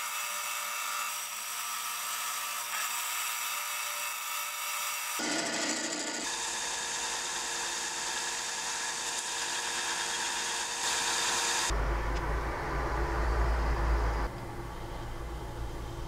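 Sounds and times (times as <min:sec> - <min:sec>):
wood grinding on sander: 0:05.1 - 0:11.7
sander motor hum: 0:05.2 - 0:12.5
low rumble: 0:11.7 - 0:16.0.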